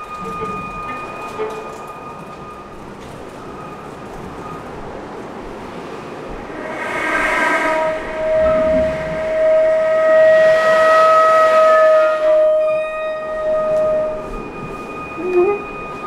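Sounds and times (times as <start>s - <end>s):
violin sustained note: 6.3s - 16.0s.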